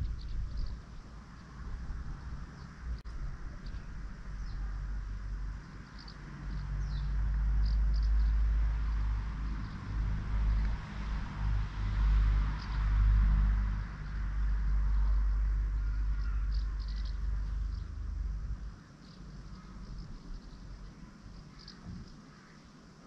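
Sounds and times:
low rumble: 0.0 - 5.8, 6.5 - 22.1
faint bird chirps: 3.5 - 4.7, 15.8 - 18.0, 18.8 - 22.8.

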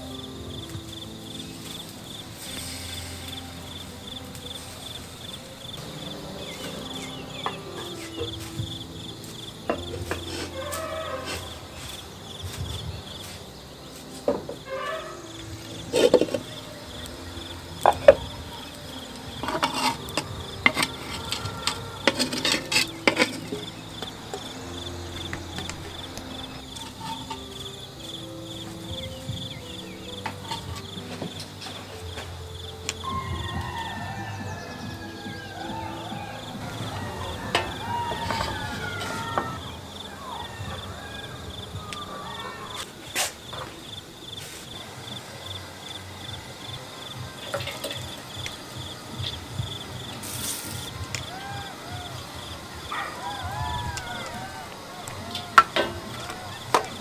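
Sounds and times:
crickets chirring: 0.0 - 57.0
kitchen utensils knocking: 15.9 - 16.5, 19.3 - 24.6, 36.6 - 39.7, 47.5 - 48.2, 55.3 - 57.0.

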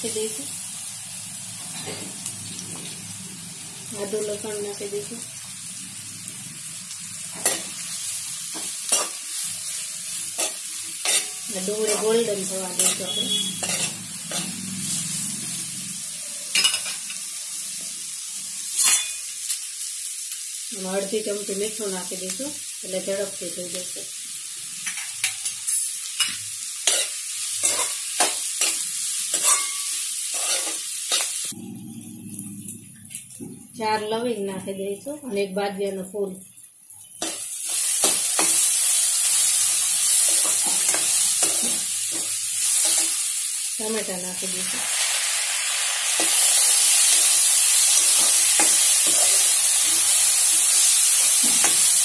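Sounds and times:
onions sizzling in hot oil: 0.0 - 31.6, 33.8 - 52.0
metal spoon scraping a pan: 10.4 - 14.6, 24.8 - 31.5, 48.0 - 50.1.

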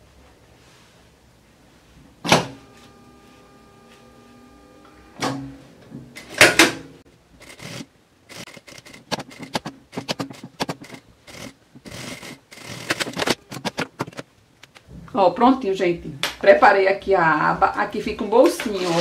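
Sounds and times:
sewing machine humming: 7.4 - 14.2.

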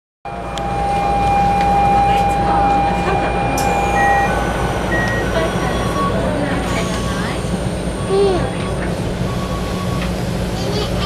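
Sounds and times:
inverter whine: 0.3 - 6.6
train low rumble: 0.3 - 11.0.

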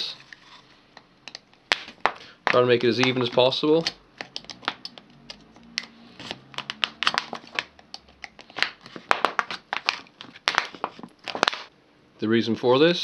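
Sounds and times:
knife cutting plastic: 1.3 - 11.7
plastic bottle crackling: 1.7 - 11.7.

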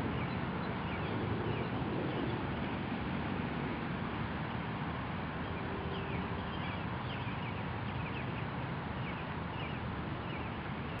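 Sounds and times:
small birds chirping: 5.9 - 11.0.

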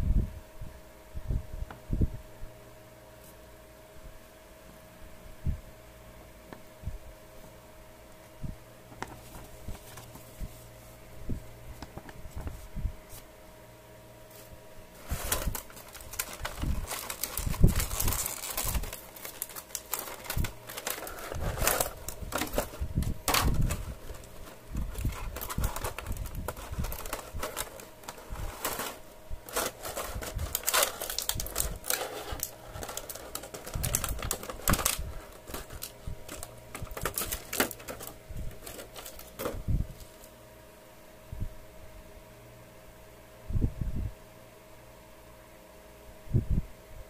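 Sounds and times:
plastic blister tray crackling: 14.3 - 40.3.

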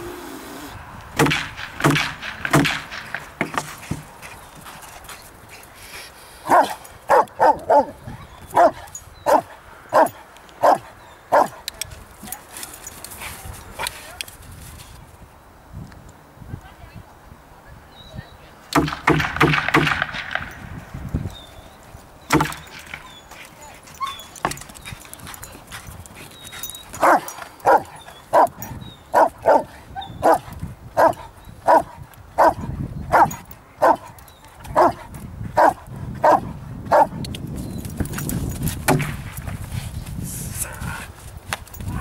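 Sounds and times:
dog barking deeply: 6.4 - 11.6, 27.0 - 34.1, 34.7 - 37.2.

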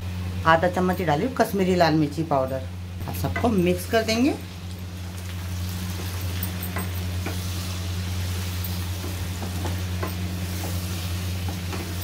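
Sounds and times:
steady low hum: 0.0 - 12.0
vegetables sizzling in oil: 3.0 - 12.0.

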